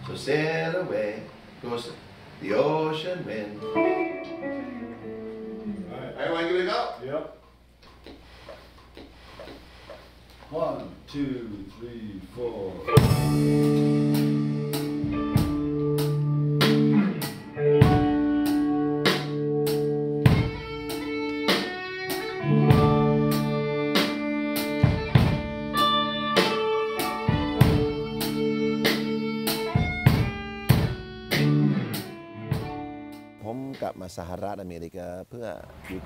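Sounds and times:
live rock band playing: 3.6 - 5.8, 12.8 - 33.4
drum hits: 12.9 - 18.3, 24.8 - 25.5, 27.2 - 28.3, 28.9 - 32.8.

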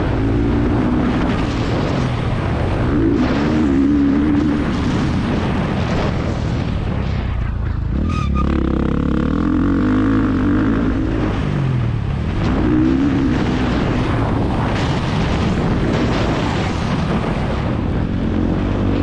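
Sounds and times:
motocross bike engine revving: 2.6 - 5.0, 7.9 - 11.6.

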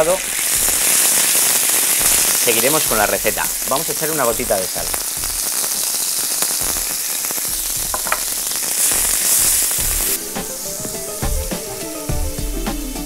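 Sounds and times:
meat sizzling in oil: 0.0 - 13.0
background music: 7.5 - 13.0.

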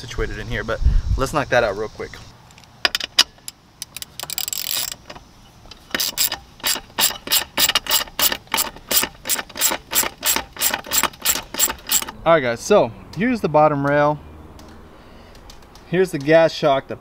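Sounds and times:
socket ratchet clicking: 2.6 - 12.2.

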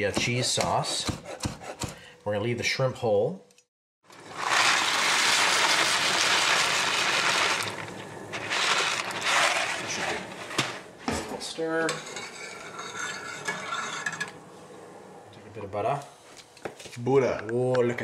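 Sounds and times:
pasta pouring into pot: 4.1 - 10.8.

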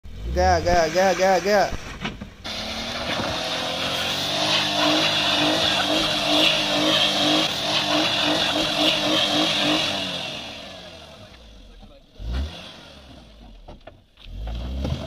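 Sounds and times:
car engine revving hard: 0.1 - 13.6, 14.2 - 15.0.

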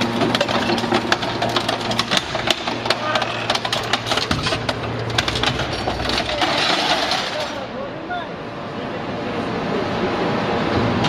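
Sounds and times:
metallic clanks and crunches: 0.0 - 7.8
hydraulic power unit humming: 0.0 - 11.0.

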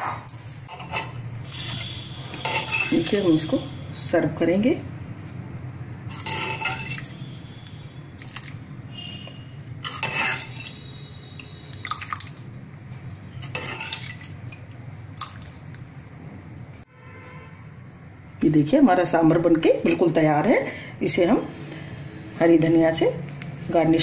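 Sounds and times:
ladle clinking against pan and bowl: 2.4 - 3.2, 6.1 - 7.1
stew splashing and dripping: 8.2 - 8.6, 10.6 - 12.6, 13.8 - 15.9.

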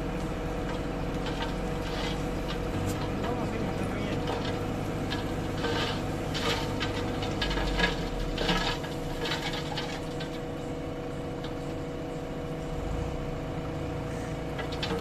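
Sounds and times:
tractor engine running: 0.0 - 15.0
earth and stones rattling out: 1.2 - 10.4.

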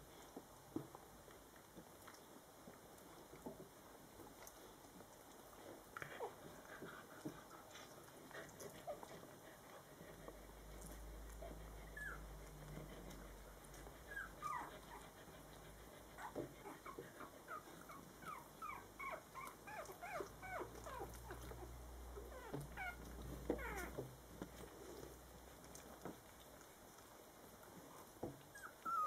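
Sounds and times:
puppies squeaking and whimpering: 11.4 - 12.3, 13.8 - 15.1, 16.2 - 24.1, 28.5 - 29.0.

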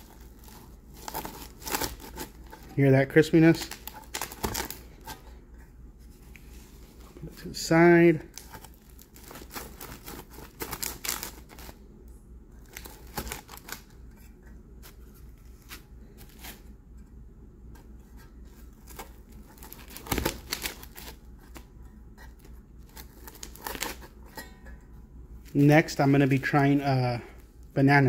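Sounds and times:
pizza crust crunching: 0.0 - 5.3, 6.9 - 11.8, 12.6 - 16.7, 18.4 - 24.5.

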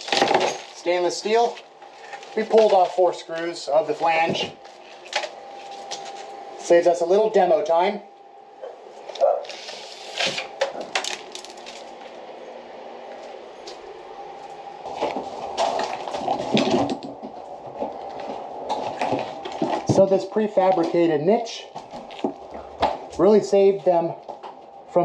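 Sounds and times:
demolition knocks and scrapes: 14.9 - 17.9.

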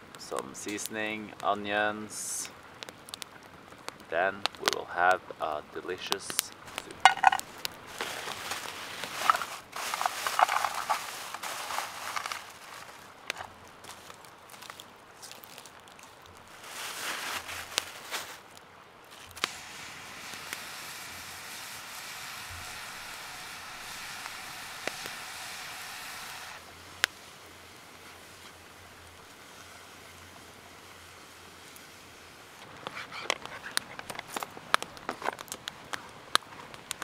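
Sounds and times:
campfire popping: 0.0 - 37.0
mushrooms sizzling in skillet: 6.0 - 18.4, 19.1 - 33.0.

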